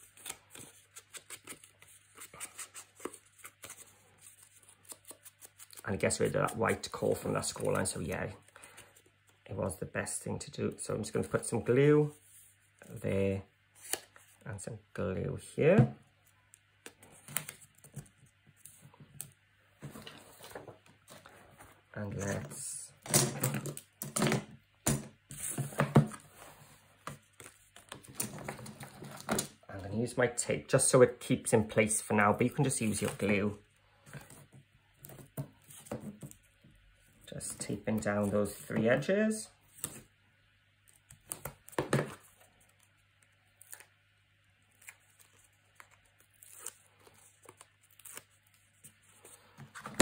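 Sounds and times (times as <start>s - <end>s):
paper rustling: 17.0s - 22.5s.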